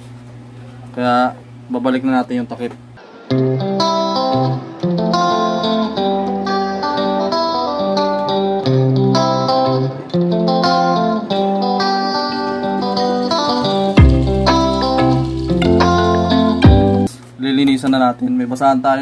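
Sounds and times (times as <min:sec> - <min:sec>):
instrumental background music: 0:03.0 - 0:17.1.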